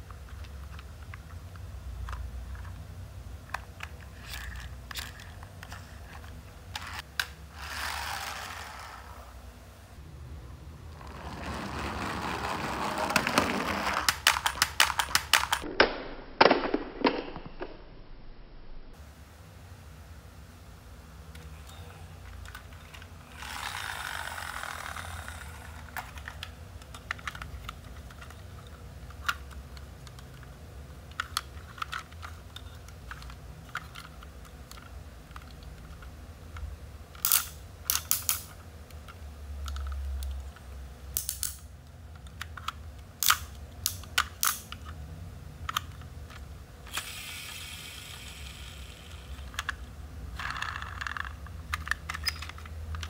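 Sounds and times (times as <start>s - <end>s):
plastic toy parts clicking: 3.4s - 8.8s, 13.8s - 15.6s, 22.3s - 30.5s, 31.1s - 40.4s, 41.1s - 45.0s, 45.6s - 53.0s.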